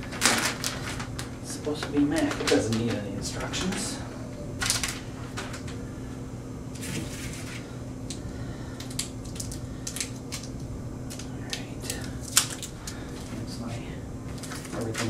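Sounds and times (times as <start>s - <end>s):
packaging rustling and clicking: 0.0s - 4.0s, 4.6s - 5.8s, 8.8s - 13.4s, 14.3s - 15.0s
low hum: 0.0s - 15.0s.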